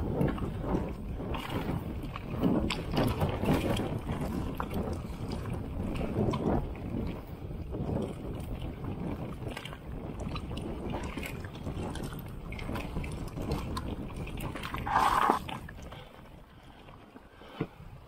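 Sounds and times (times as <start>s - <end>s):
bike rattling and clicking: 0.0s - 16.4s
wind buffeting microphone: 0.0s - 18.0s
bike tyres on stones: 14.8s - 16.3s.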